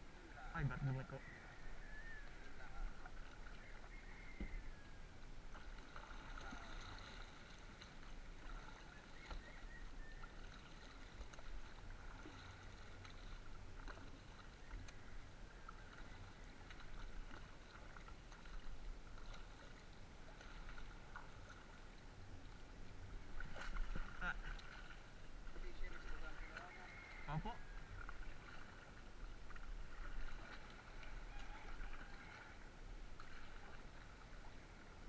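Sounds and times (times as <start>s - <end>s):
water lapping against boat hull: 0.1s - 35.0s.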